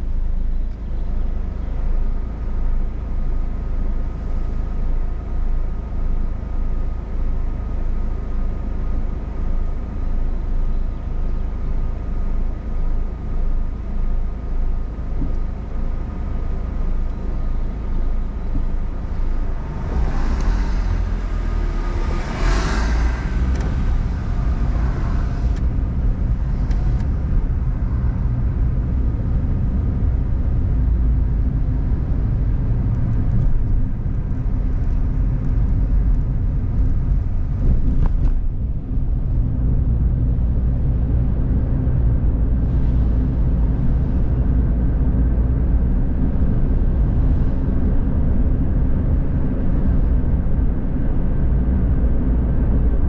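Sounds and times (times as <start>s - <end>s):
car engine and cabin rumble: 0.0s - 53.0s
passing vehicle whoosh: 18.2s - 31.5s.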